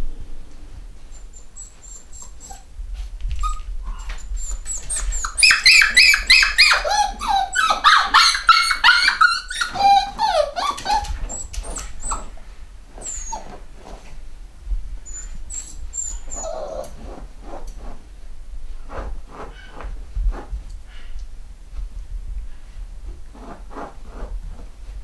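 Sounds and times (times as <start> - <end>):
puppies whining and yipping: 1.2 - 2.7, 3.4 - 12.4, 13.0 - 13.6, 15.1 - 17.2.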